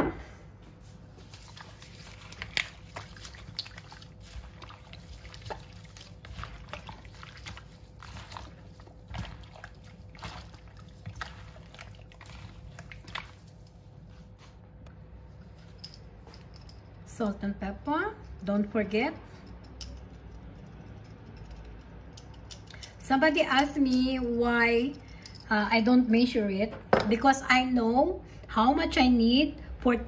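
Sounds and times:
wet squelches and sloshes: 0.8s - 14.8s.

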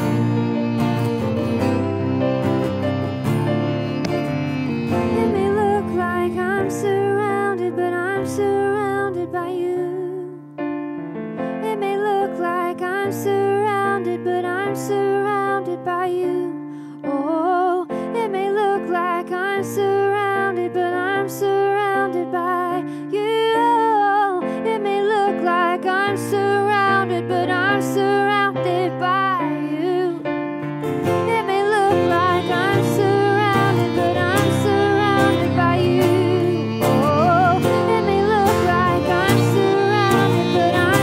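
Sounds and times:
violin melody with vibrato: 0.0s - 8.5s, 30.8s - 41.0s
sustained keyboard chords: 0.0s - 8.7s, 25.4s - 41.0s
acoustic guitar: 0.0s - 17.0s, 17.9s - 41.0s.

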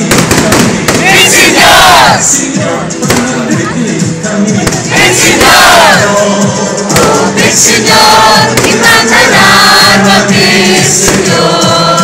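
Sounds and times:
sharp cracks: 0.0s - 1.2s, 3.1s - 3.5s
crowd singing a hymn: 0.0s - 12.0s.

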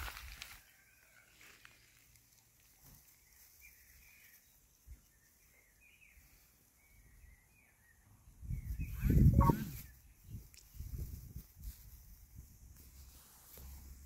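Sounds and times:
faint high chirping calls: 2.8s - 11.0s.

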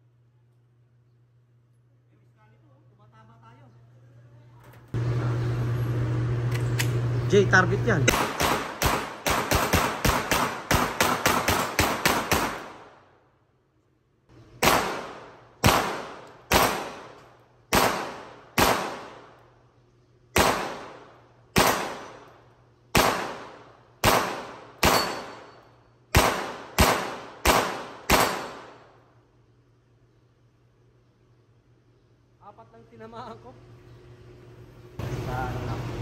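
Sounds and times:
pistol shots echoing: 8.1s - 13.1s, 14.6s - 19.5s, 20.3s - 29.0s.

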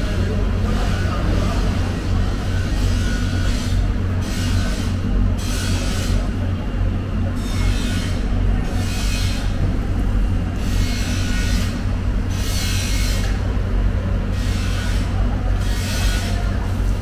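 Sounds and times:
machinery hum: 0.0s - 17.0s.

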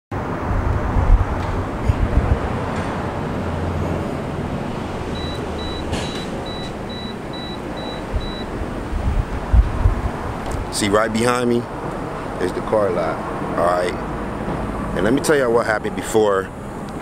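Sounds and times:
passing traffic: 0.1s - 17.0s
wind rumble on microphone: 0.2s - 5.3s, 8.0s - 11.0s
short high-pitched electronic beeps: 6.5s - 8.5s.

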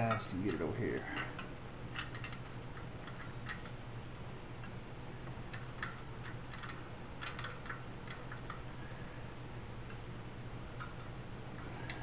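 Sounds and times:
tools clicking on metal: 0.0s - 3.8s, 5.5s - 8.6s
steady low hum: 0.0s - 12.0s.

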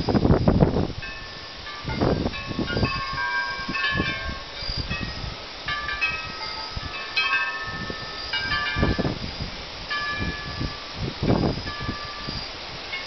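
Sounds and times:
wind gusts buffeting microphone: 0.0s - 13.0s
wind chimes ringing: 1.0s - 13.0s.

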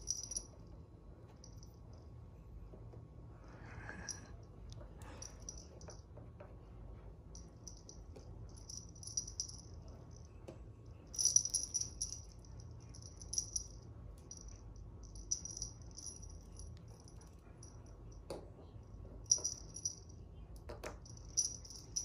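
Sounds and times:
light metallic jingling: 0.0s - 0.5s, 5.1s - 6.0s, 7.4s - 10.4s, 11.1s - 18.2s, 19.3s - 20.1s, 21.0s - 22.0s.

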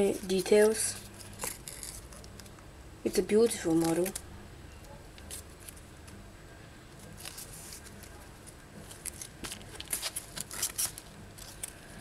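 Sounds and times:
paper rustling and crinkling: 0.2s - 2.5s, 7.0s - 12.0s.

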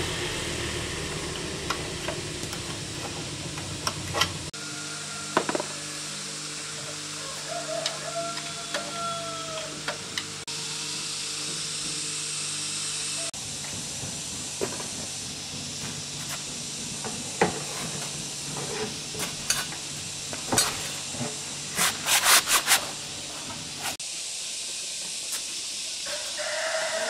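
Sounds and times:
steady hiss: 12.1s - 27.0s.

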